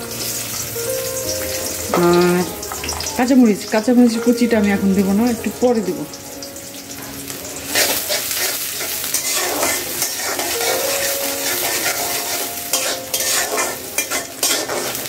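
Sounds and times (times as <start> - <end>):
onions sizzling in oil: 0.0 - 15.0
metal spatula scraping pan: 7.7 - 15.0.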